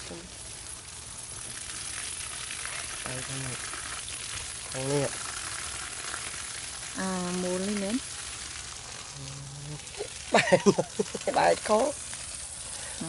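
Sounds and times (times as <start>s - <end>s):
background hiss: 0.0s - 13.0s
man humming or grunting: 9.2s - 10.1s.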